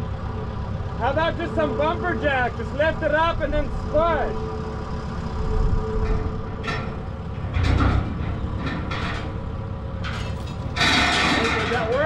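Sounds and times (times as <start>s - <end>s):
engine low rumble: 0.0s - 12.0s
metallic rattles and clanks: 4.9s - 12.0s.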